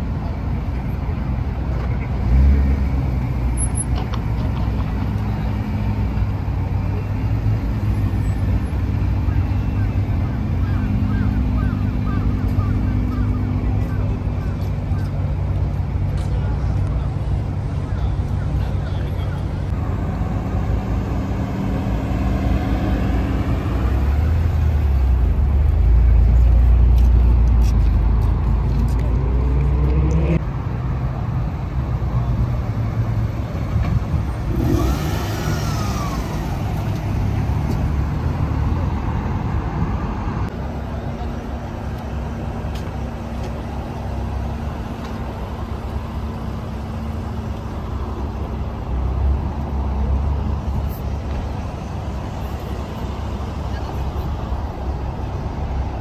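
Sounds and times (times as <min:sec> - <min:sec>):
quiet steady engine hum: 0:00.0 - 0:56.0
car engine revving: 0:34.2 - 0:38.7.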